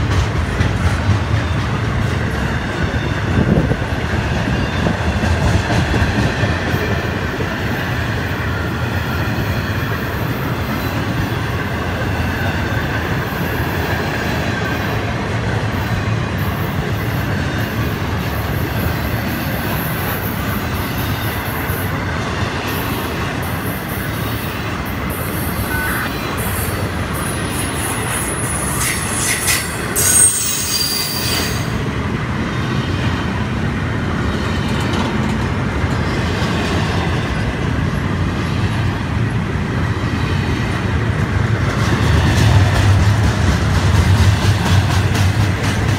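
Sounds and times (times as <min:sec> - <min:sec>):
freight train wheels on rail: 0:00.0 - 0:45.9
high-pitched wheel squeal: 0:28.3 - 0:31.7.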